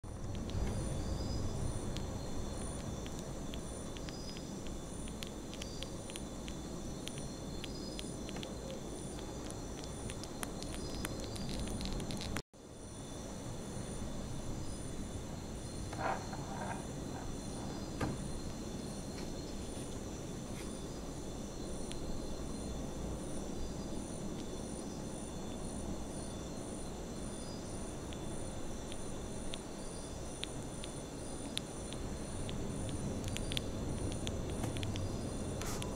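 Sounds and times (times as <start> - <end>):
low rumble and hiss: 0.0 - 35.9
light clicks: 30.4 - 35.9.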